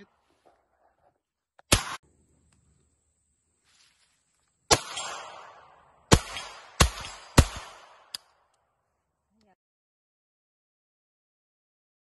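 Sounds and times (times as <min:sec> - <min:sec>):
rifle shots with echo: 0:01.7 - 0:02.0, 0:04.7 - 0:08.2.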